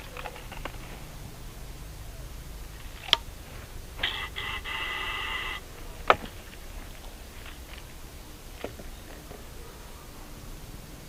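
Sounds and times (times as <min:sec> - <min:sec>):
high-pitched squeal: 0:03.4 - 0:06.0
toy gun sharp click: 0:04.0 - 0:05.6.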